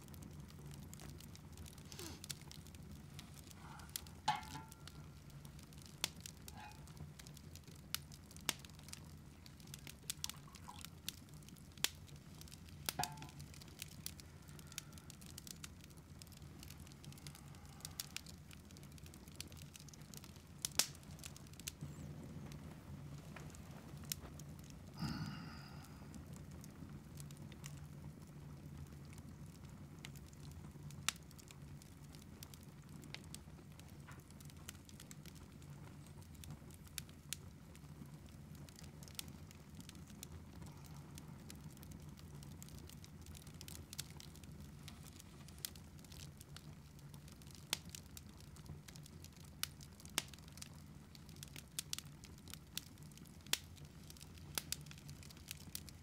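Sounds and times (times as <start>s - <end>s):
wood fire crackling: 0.0s - 56.0s
low steady hum: 19.6s - 26.3s.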